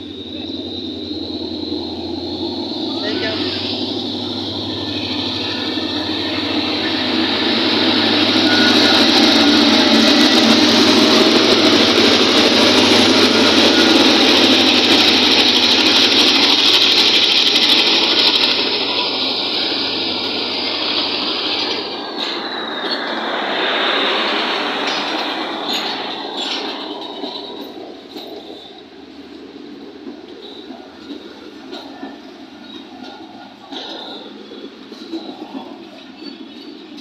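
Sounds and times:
locomotive engine running loudly: 0.0s - 28.7s
train coaches rolling by: 0.0s - 37.0s
wheels clicking over rail joints: 24.7s - 37.0s.

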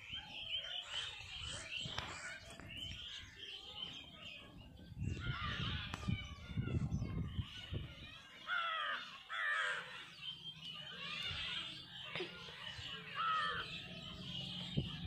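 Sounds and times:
crows cawing: 8.4s - 10.1s, 13.1s - 13.8s.

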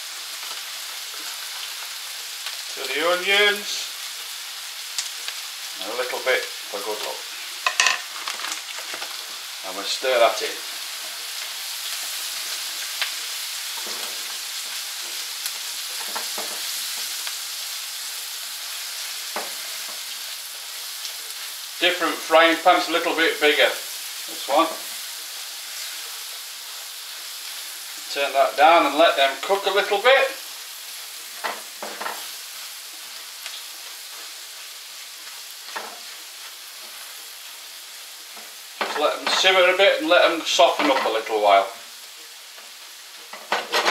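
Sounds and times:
onions sizzling in a frying pan: 0.0s - 43.9s
spatula scraping a pan: 13.6s - 14.4s, 43.3s - 43.9s.

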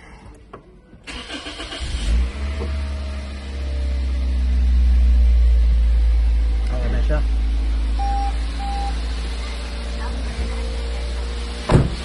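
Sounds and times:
car starter cranking: 1.0s - 2.8s
car engine idling: 1.1s - 12.0s.

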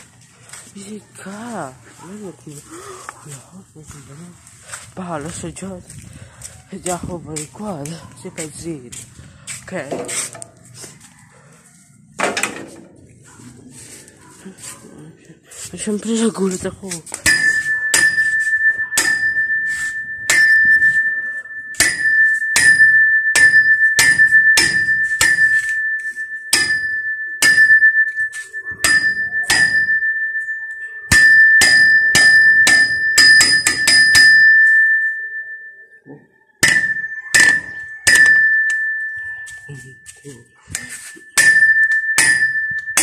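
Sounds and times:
hard object struck ringing high: 17.2s - 43.0s.

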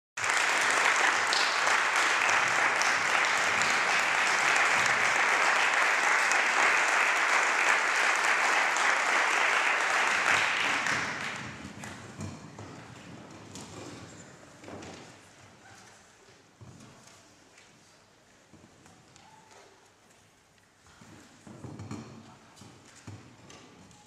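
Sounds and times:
audience applauding: 0.2s - 11.6s.

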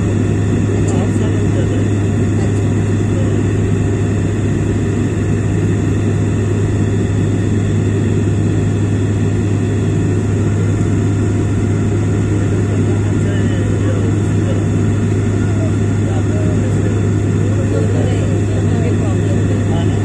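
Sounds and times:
aircraft engines droning: 0.0s - 20.0s
rumble of air: 0.0s - 20.0s.

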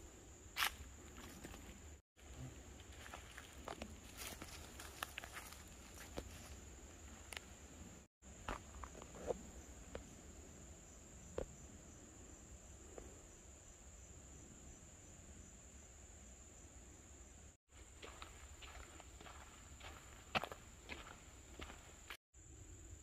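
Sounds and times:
insect chorus drone: 0.0s - 23.0s
footsteps on dry leaves: 2.8s - 6.6s.

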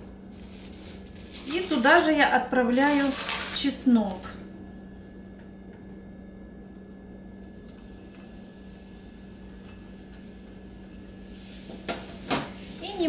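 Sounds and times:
garlic sizzling faintly in oil: 0.0s - 4.2s, 7.3s - 13.0s
steady low hum: 0.0s - 13.0s.

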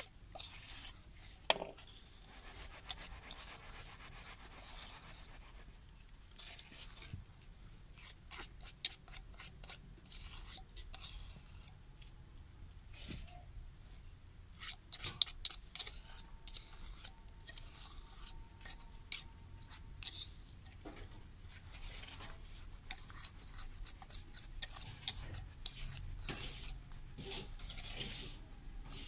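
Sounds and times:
sand scraping: 24.1s - 29.0s.

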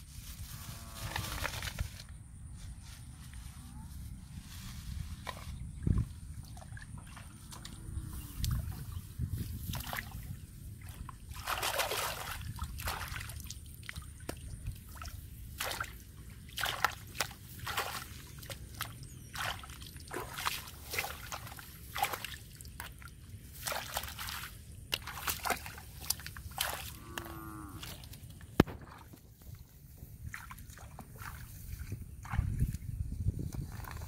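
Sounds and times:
hands splashing in water: 10.8s - 22.4s.

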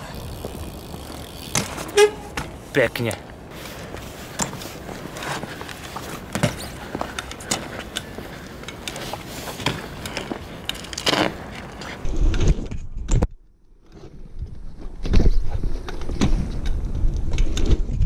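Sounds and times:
bike rumbling over paving blocks: 0.0s - 12.1s
bike tyres rolling on asphalt: 0.0s - 12.4s, 13.9s - 18.0s.

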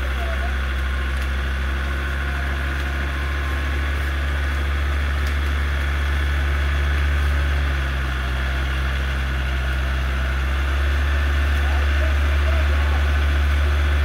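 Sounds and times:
engine running at low revs: 0.0s - 14.0s.

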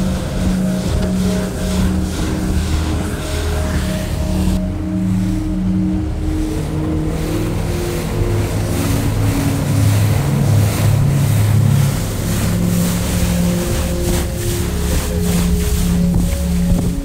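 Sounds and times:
boat engine drone: 0.0s - 17.0s
low held synth notes: 0.0s - 17.0s
water and waves: 0.0s - 17.0s.

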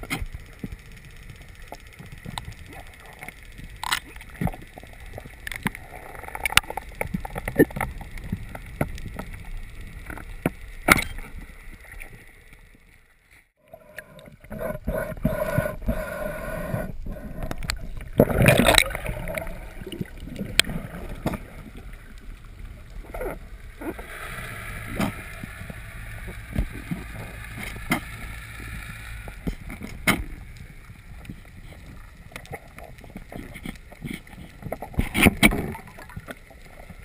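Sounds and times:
sharp underwater clicks and knocks: 0.0s - 12.3s, 17.1s - 37.0s
gurgling water: 0.0s - 13.0s, 13.6s - 37.0s
steady hum: 13.7s - 34.6s
low underwater rumble: 13.8s - 34.6s.

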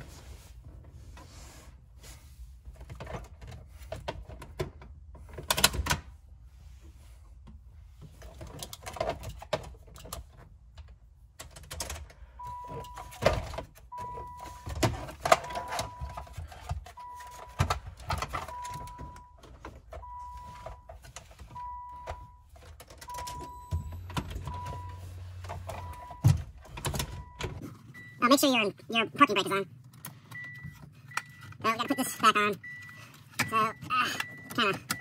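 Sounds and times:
car warning chime beeping: 12.4s - 13.2s, 13.8s - 14.7s, 15.4s - 17.7s, 18.3s - 29.5s, 30.3s - 35.0s.

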